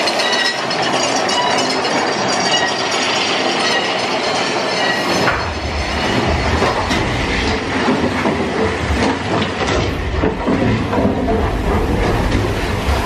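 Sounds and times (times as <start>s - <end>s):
roller coaster clattering: 0.0s - 13.0s
low rumble: 5.3s - 13.0s.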